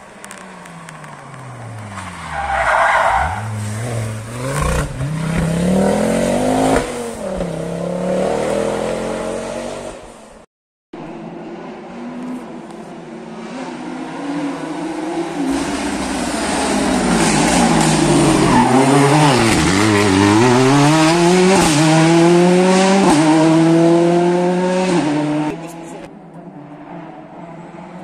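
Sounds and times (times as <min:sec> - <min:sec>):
rally car engine revving: 0:03.1 - 0:10.0, 0:11.4 - 0:26.1.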